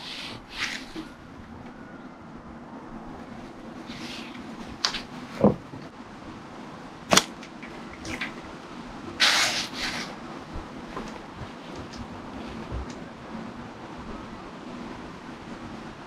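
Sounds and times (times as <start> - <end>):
rustling swish: 0.0 - 1.2.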